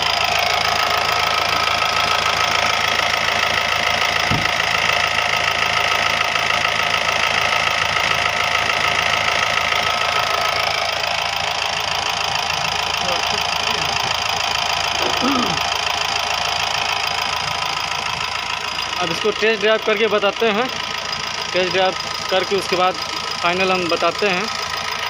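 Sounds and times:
diesel engine idling: 0.0s - 25.0s.

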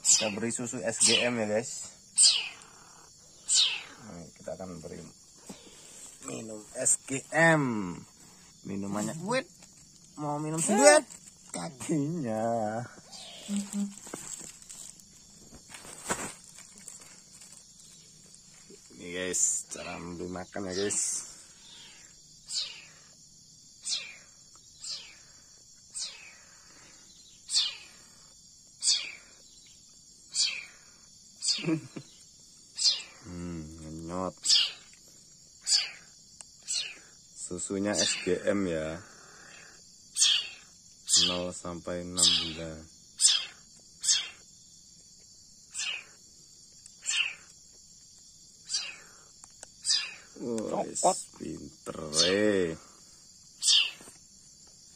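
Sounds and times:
insects chirring: 0.0s - 54.9s
kitten hissing: 2.2s - 2.6s.

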